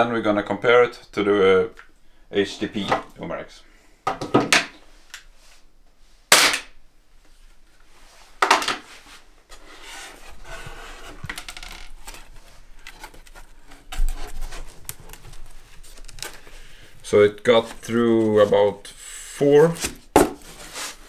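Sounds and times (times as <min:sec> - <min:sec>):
cardboard sliding and rustling: 0:08.0 - 0:16.6, 0:17.5 - 0:21.0
cardboard slapping on table: 0:19.8 - 0:20.5.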